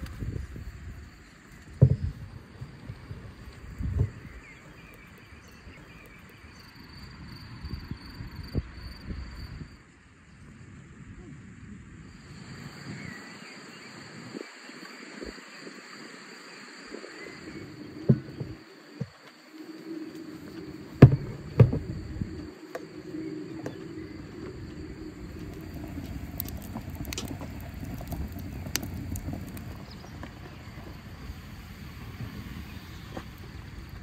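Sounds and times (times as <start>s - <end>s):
insects trilling: 0.0s - 34.0s
soft knocks: 21.0s - 21.9s.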